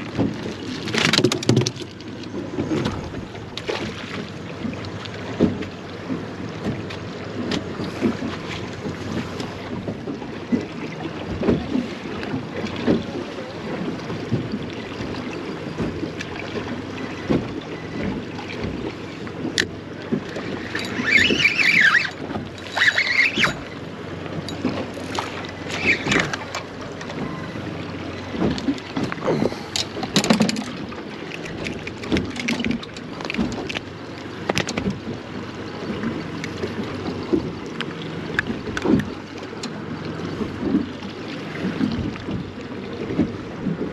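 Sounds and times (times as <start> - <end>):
water slapping boat hull: 0.0 - 43.9
brief squeaks: 20.4 - 23.8, 25.4 - 28.8.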